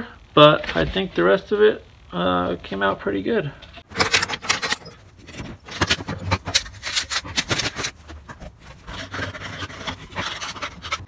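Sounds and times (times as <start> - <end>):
metal clamps clicking and clanking: 3.8 - 7.9.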